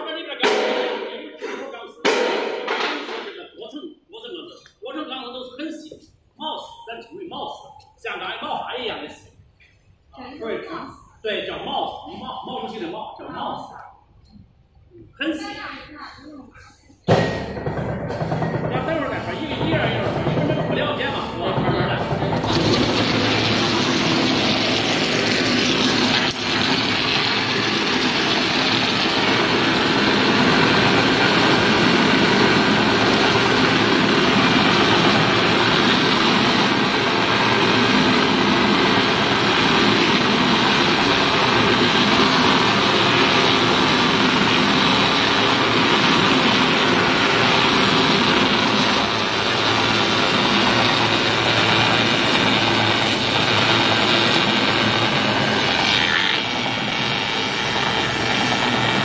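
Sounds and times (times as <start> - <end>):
tyre cutting machine droning: 17.3 - 59.0.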